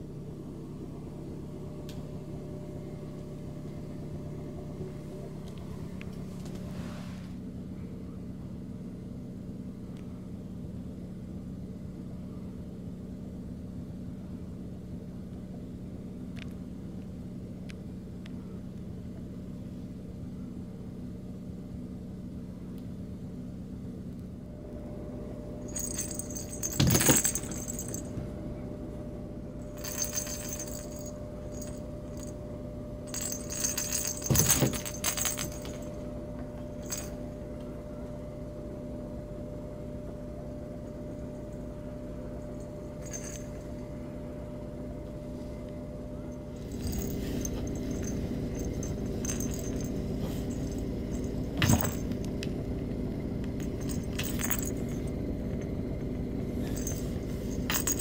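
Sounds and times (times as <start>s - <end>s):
steady low hum: 0.0s - 58.0s
cat toy bell jingling: 25.7s - 28.1s, 29.6s - 32.3s, 33.1s - 35.9s, 43.0s - 43.6s, 46.6s - 52.1s, 53.6s - 55.0s, 56.7s - 58.0s.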